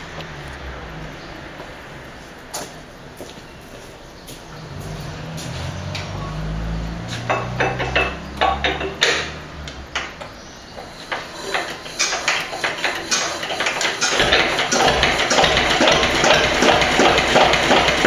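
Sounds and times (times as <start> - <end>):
metallic knocks and clicks: 7.2 - 18.0.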